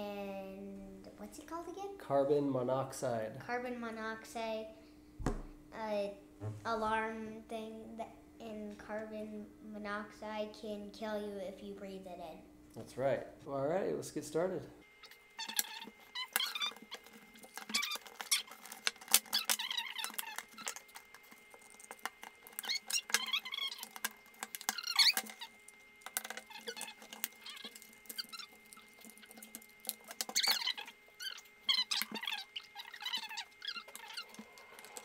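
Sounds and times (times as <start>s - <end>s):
plastic case creaking apart: 15.4s - 35.0s.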